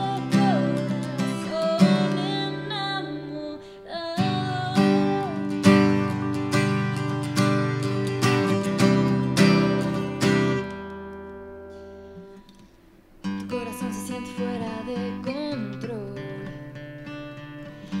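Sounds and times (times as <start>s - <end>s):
woman singing: 0.0s - 6.0s, 13.4s - 16.7s
acoustic guitar strumming: 0.0s - 18.0s.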